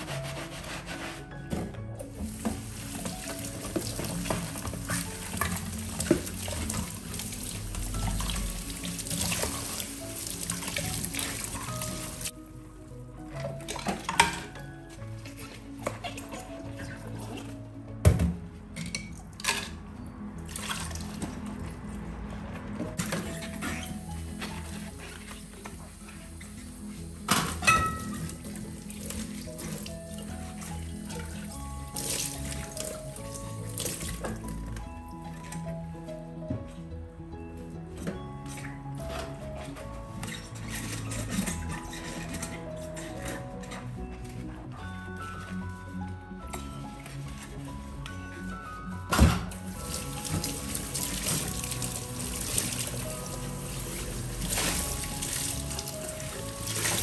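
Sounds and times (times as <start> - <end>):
background music: 0.0 - 57.0
running tap water: 2.2 - 12.3, 23.0 - 34.8, 49.5 - 57.0
dishes clinking: 27.3 - 28.3.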